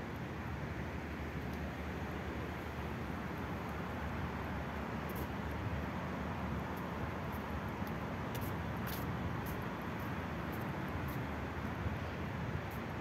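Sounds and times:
road traffic rumble: 0.0 - 13.0
light high ticks: 1.4 - 1.7, 6.6 - 11.8.

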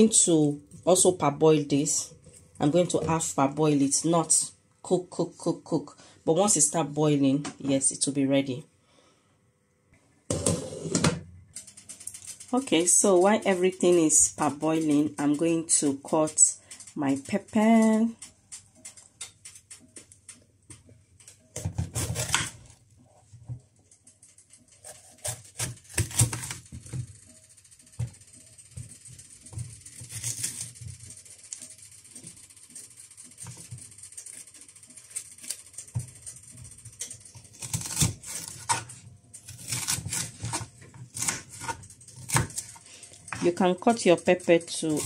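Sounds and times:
knife cutting on wooden board: 21.6 - 22.7.

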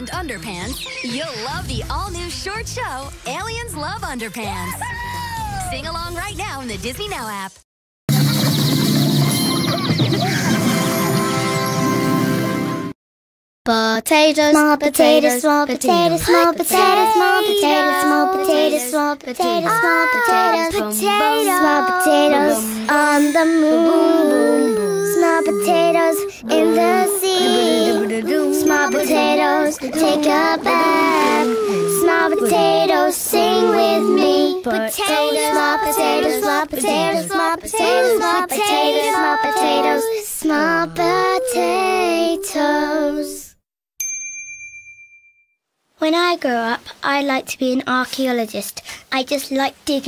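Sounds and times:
children singing: 14.6 - 43.5.

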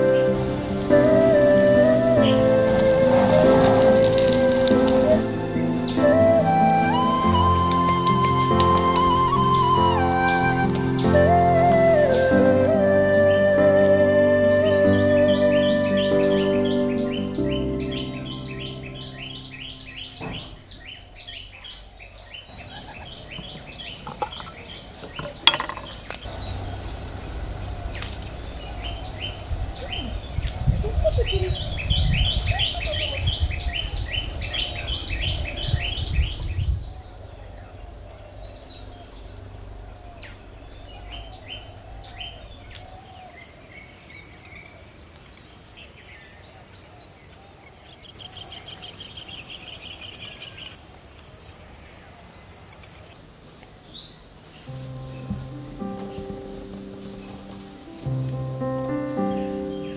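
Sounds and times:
high insect drone: 0.0 - 5.9
birds chirping: 0.0 - 53.2, 53.8 - 59.9.

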